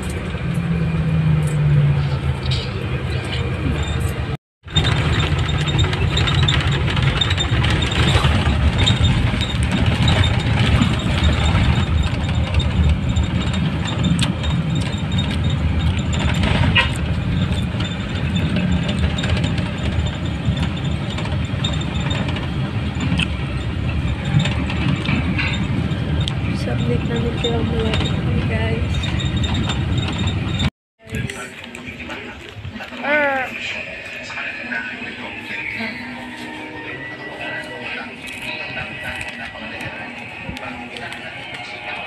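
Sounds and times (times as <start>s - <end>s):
bus engine and road drone: 0.0s - 42.0s.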